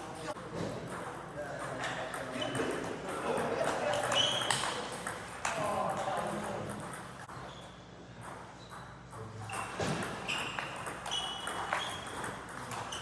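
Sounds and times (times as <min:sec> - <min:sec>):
table tennis balls clicking: 0:08.2 - 0:13.0.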